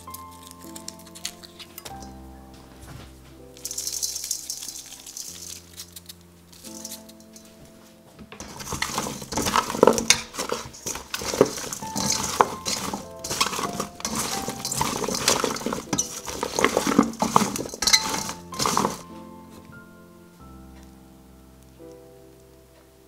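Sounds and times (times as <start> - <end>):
tongs clinking in metal bowl: 0.0 - 2.2, 3.6 - 7.6, 8.4 - 19.1
vegetable pieces shuffling: 0.0 - 19.6.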